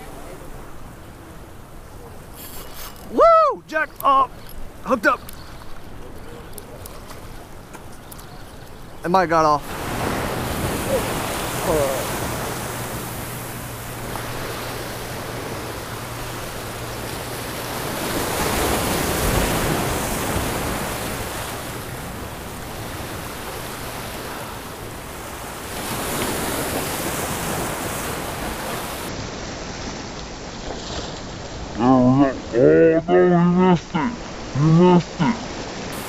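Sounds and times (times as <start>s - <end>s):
surf washing against rocks: 0.0s - 36.0s.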